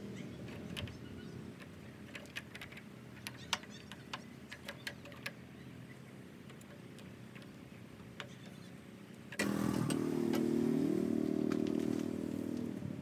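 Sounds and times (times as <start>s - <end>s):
bird chirp: 0.0s - 2.1s, 3.2s - 6.3s, 7.2s - 9.3s
hex key metallic clicks: 1.6s - 5.4s.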